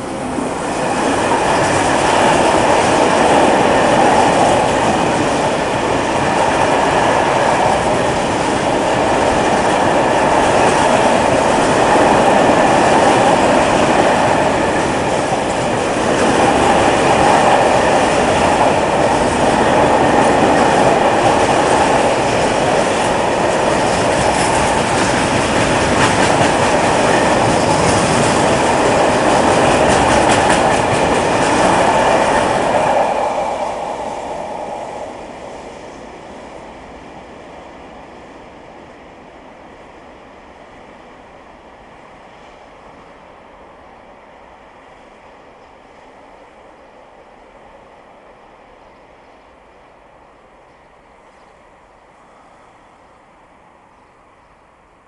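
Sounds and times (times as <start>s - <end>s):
freight train wheels rumbling on rails: 0.0s - 55.0s.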